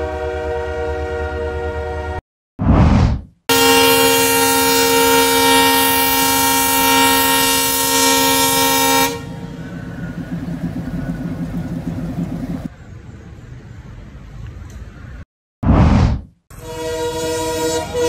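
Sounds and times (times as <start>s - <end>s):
train air horn chord: 0.0s - 2.2s, 3.5s - 9.7s, 16.5s - 18.0s
pulsing low rumble: 9.2s - 12.7s.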